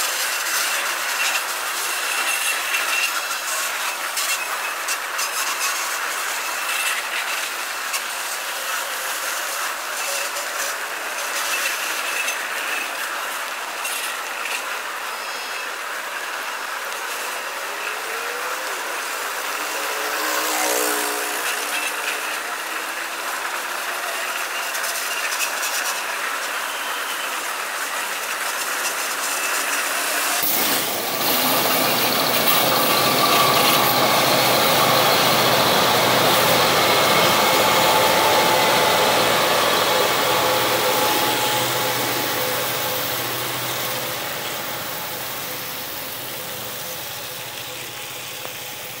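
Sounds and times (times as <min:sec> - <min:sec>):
diesel locomotives rumbling: 0:10.8 - 0:49.0
freight wagons rolling past: 0:28.7 - 0:49.0.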